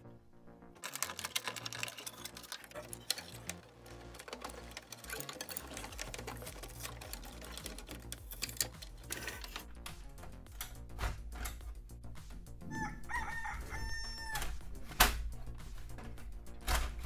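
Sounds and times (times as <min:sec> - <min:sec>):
faint background music: 0:00.0 - 0:17.0
plastic connectors clicking and rattling: 0:00.8 - 0:11.6.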